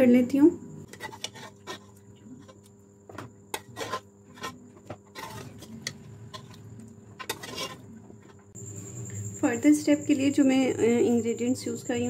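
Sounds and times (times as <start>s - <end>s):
metal ladle scraping pot: 0.9s - 8.5s.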